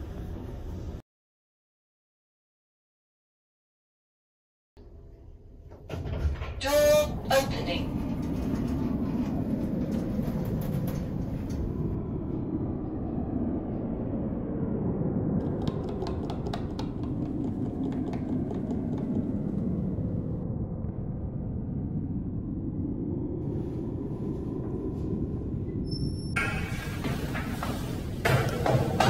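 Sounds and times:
low rumble inside a lift: 0:00.0 - 0:01.0, 0:04.8 - 0:29.0.

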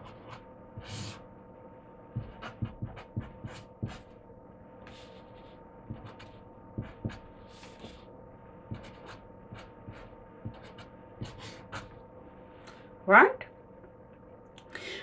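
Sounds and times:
marker pen scratching on paper: 0:00.0 - 0:01.2, 0:02.1 - 0:04.2, 0:04.8 - 0:08.1, 0:08.7 - 0:12.0
steady low hum: 0:00.0 - 0:15.0.

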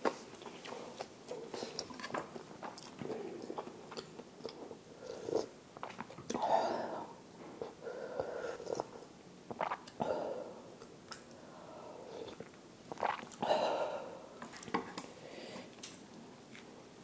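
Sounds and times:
slurping noodles and broth: 0:12.2 - 0:13.5.

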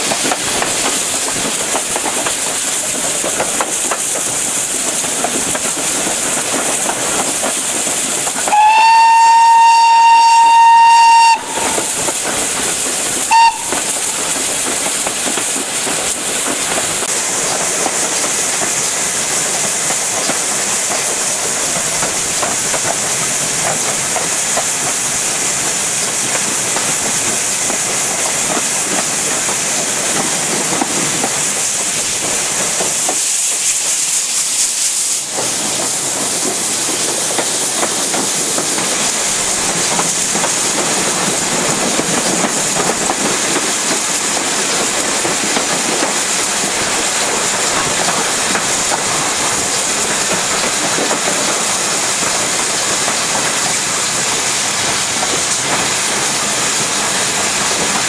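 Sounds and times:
steam locomotive hiss and rail clatter: 0:00.0 - 0:58.0
steam whistle blowing: 0:08.4 - 0:12.1, 0:13.3 - 0:14.1.

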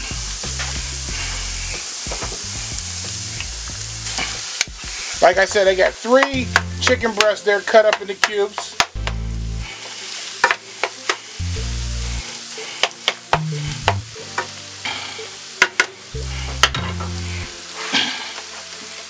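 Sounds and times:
deep bass background music: 0:00.0 - 0:07.4, 0:09.0 - 0:09.8, 0:11.4 - 0:12.3, 0:13.3 - 0:14.7, 0:16.1 - 0:17.6
chicken sizzling in a skillet: 0:00.0 - 0:19.0.

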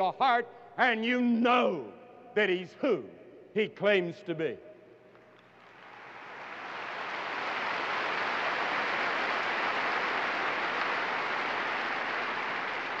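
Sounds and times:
large crowd applauding: 0:05.6 - 0:13.0.

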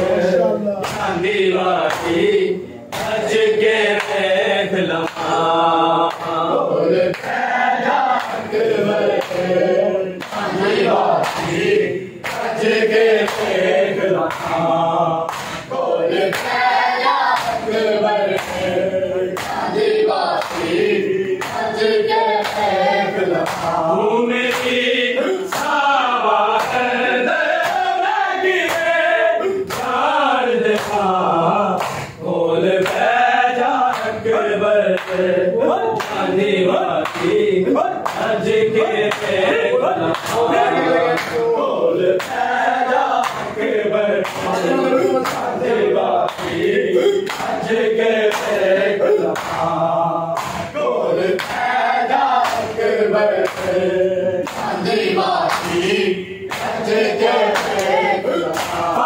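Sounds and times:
men chanting in unison: 0:00.0 - 0:59.0
hands slapping chests: 0:00.8 - 0:01.2, 0:01.8 - 0:02.2, 0:05.0 - 0:05.4, 0:08.1 - 0:09.5, 0:10.2 - 0:12.6, 0:13.2 - 0:13.6, 0:14.2 - 0:14.7, 0:15.3 - 0:16.6, 0:17.3 - 0:17.7, 0:18.3 - 0:19.7, 0:20.4 - 0:20.8, 0:21.4 - 0:21.7, 0:23.4 - 0:23.8, 0:24.4 - 0:24.8, 0:25.5 - 0:25.8, 0:26.5 - 0:26.9, 0:27.6 - 0:27.9, 0:29.6 - 0:30.0, 0:31.8 - 0:32.2, 0:32.8 - 0:33.1, 0:34.9 - 0:35.2, 0:37.0 - 0:38.4, 0:39.0 - 0:41.4, 0:42.2 - 0:43.6, 0:44.2 - 0:47.6, 0:48.3 - 0:49.8, 0:50.4 - 0:50.8, 0:51.4 - 0:52.8, 0:53.4 - 0:53.8, 0:54.4 - 0:54.8, 0:55.4 - 0:56.9, 0:57.5 - 0:59.0.

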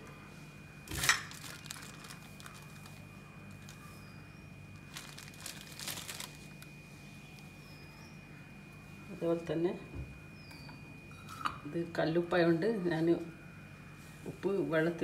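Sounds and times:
packaging crinkling and rustling: 0:00.9 - 0:04.1, 0:04.7 - 0:06.8.

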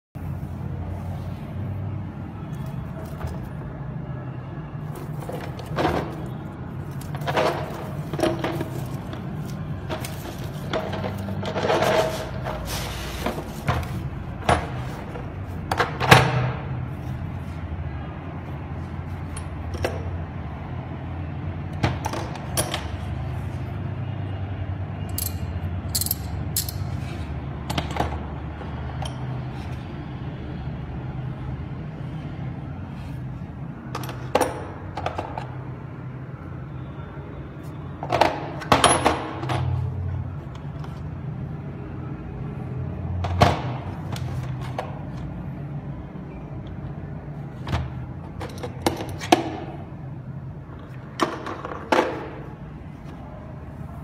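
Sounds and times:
metal sockets clinking: 0:19.1 - 0:20.2, 0:25.1 - 0:28.2, 0:33.9 - 0:35.6, 0:47.7 - 0:49.8.

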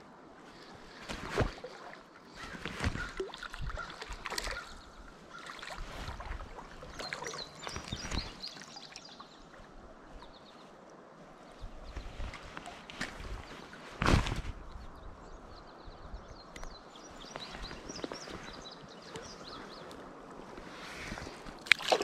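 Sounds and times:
fish splashing in shallow water: 0:00.6 - 0:09.7, 0:21.1 - 0:22.0.

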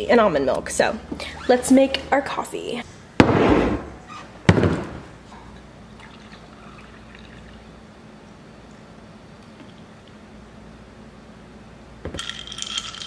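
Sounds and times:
liquid pouring: 0:05.5 - 0:07.7, 0:12.2 - 0:13.0.

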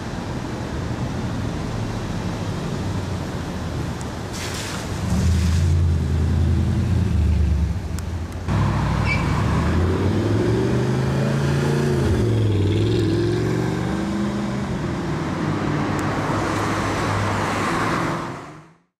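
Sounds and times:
city traffic noise: 0:00.0 - 0:19.0.

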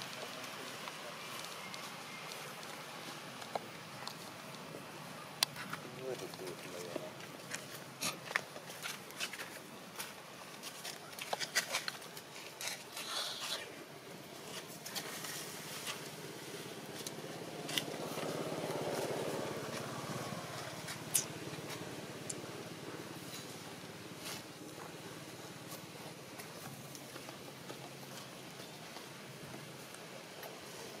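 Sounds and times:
leaves and twigs crackling: 0:00.0 - 0:04.7, 0:14.3 - 0:22.5.

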